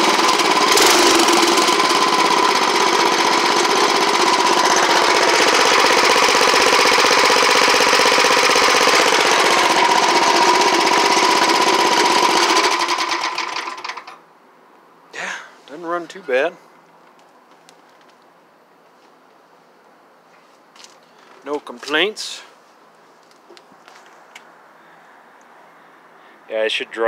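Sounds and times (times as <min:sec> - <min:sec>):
garden tractor engine running: 0:00.0 - 0:14.2.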